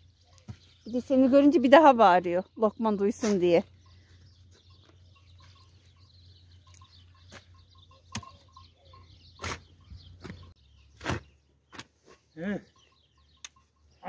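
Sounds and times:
faint bird chirps: 2.5 - 14.0
spade striking soil: 9.4 - 10.4, 11.0 - 11.9.

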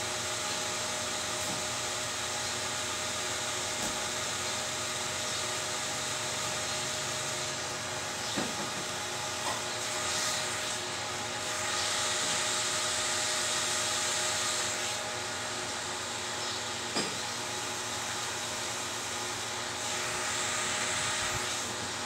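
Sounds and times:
background whir and hiss: 0.0 - 22.0.

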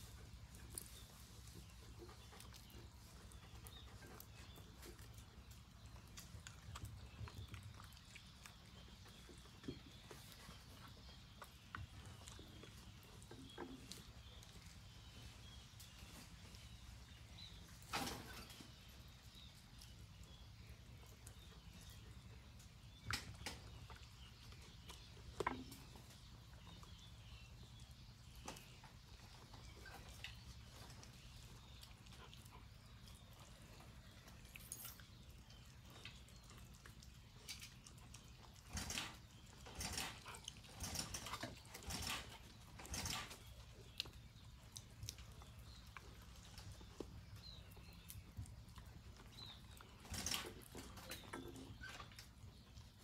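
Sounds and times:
dogs chewing: 0.0 - 17.7, 18.7 - 53.0.

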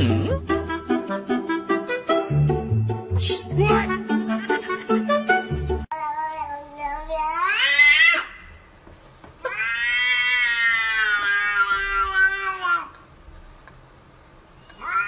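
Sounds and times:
cat meowing: 9.5 - 12.9, 14.7 - 15.0.

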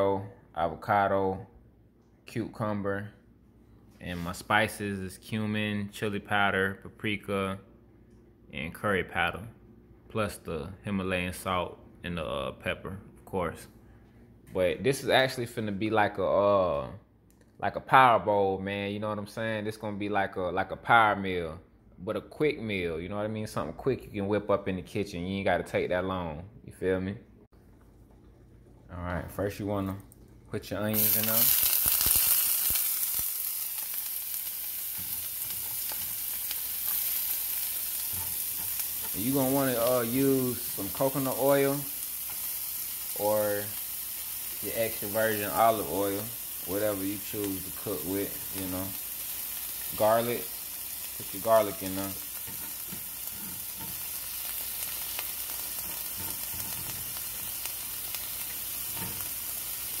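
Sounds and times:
onions sizzling in oil: 30.9 - 60.0.

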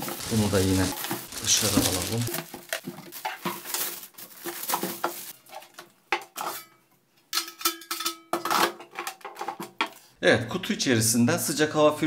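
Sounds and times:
plastic wrapping rustling: 0.0 - 5.8.

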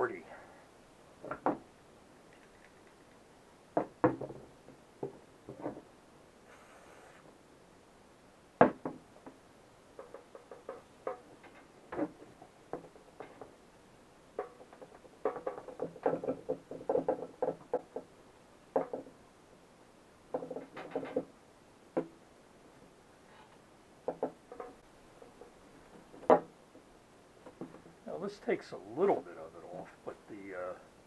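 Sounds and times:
power cord tapping and knocking: 14.4 - 18.1.

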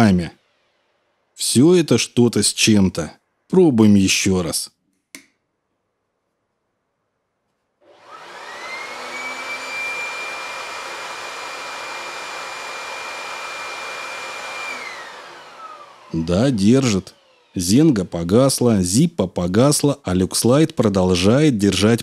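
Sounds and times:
electric air blower whine: 7.8 - 18.9.

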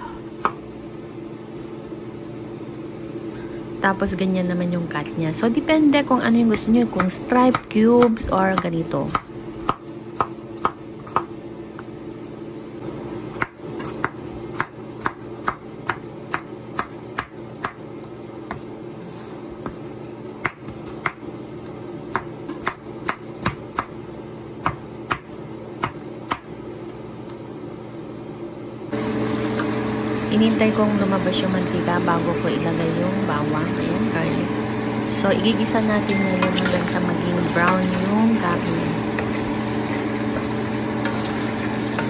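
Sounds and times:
meat sizzling in a frying pan: 38.6 - 42.0.

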